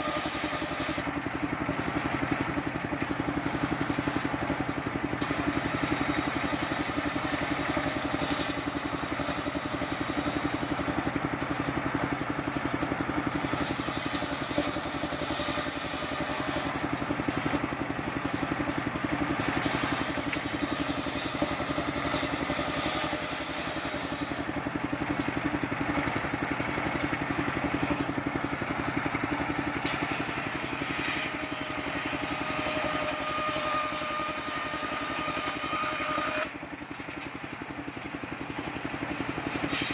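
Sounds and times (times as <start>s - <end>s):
circular saw cutting wood: 0.0s - 37.4s, 39.0s - 39.9s
saw engine running: 0.0s - 39.9s.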